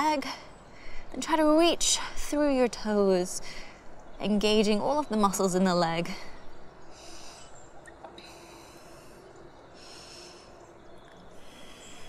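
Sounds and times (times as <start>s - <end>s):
woman breathing slowly: 0.2s - 1.2s, 3.4s - 4.0s, 6.1s - 12.0s.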